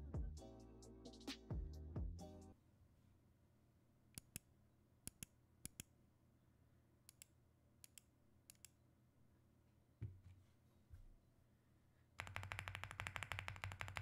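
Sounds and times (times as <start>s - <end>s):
mechanical keyboard key clacks: 12.2s - 14.0s.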